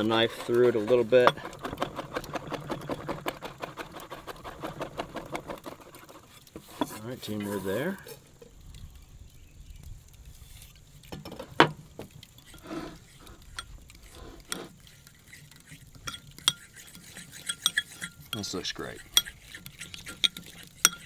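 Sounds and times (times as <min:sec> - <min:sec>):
spoon stirring thick paste: 0:00.0 - 0:03.1, 0:12.4 - 0:21.0
spoon clinking on ceramic bowl: 0:16.0 - 0:21.0.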